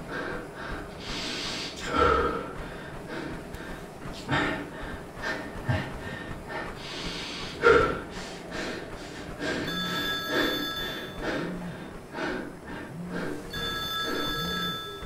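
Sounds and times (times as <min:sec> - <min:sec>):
man breathing hard: 0:00.0 - 0:14.6
phone ringing: 0:09.7 - 0:11.2, 0:13.5 - 0:15.0.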